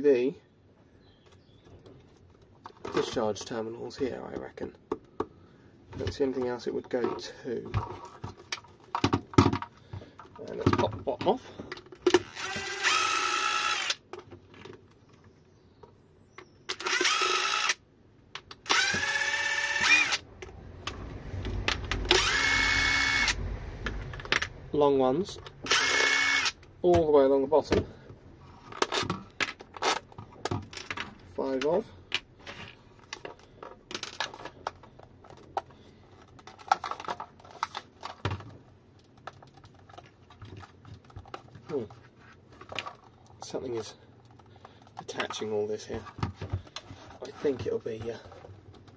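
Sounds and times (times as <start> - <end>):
electric screwdriver motor whine: 12.2 - 14.0, 16.8 - 17.8, 18.7 - 20.2, 22.1 - 23.4, 25.6 - 26.6
plastic casing clicks and creaks: 28.7 - 42.0.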